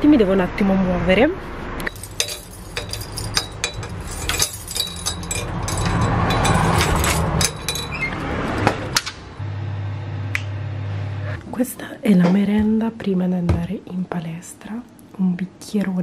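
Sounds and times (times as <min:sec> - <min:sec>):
steady low hum: 0:01.8 - 0:07.9, 0:09.4 - 0:12.2
keys jangling: 0:01.8 - 0:08.1.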